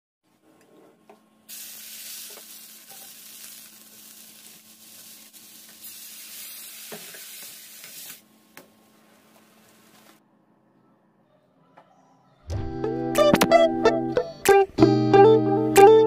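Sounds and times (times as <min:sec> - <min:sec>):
food sizzling in a wok: 0:01.5 - 0:08.2.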